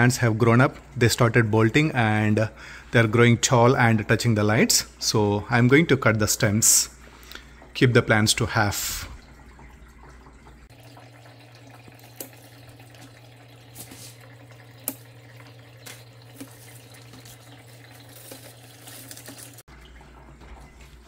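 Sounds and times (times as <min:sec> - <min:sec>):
water pump humming: 0:00.0 - 0:21.0
water trickling: 0:06.4 - 0:21.0.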